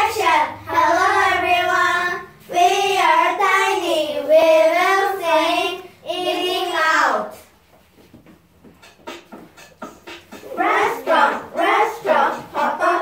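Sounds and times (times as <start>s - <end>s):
children singing in unison: 10.4s - 13.0s.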